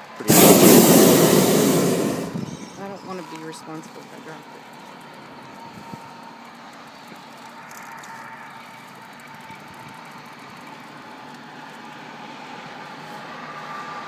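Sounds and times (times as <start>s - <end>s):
outdoor hiss: 0.0s - 3.6s.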